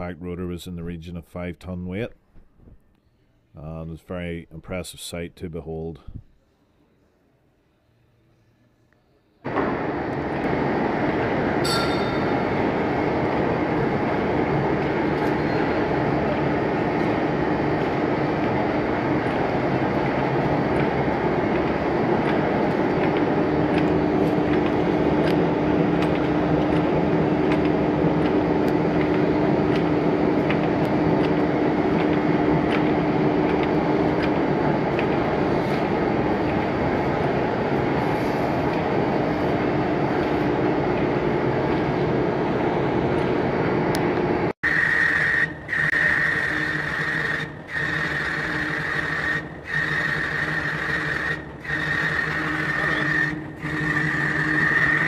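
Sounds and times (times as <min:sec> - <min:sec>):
lathe mechanical rumble: 0:09.4 - 0:55.0
machine tool high whine: 0:09.4 - 0:55.0.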